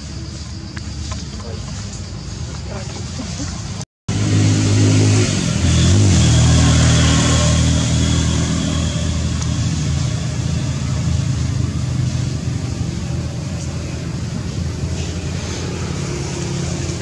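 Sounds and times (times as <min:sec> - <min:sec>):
motor engine running: 0:04.1 - 0:17.0.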